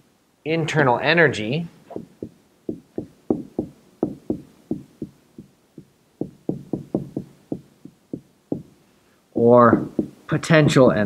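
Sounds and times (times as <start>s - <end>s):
marker tapping on whiteboard: 1.9s - 8.7s, 9.7s - 10.2s.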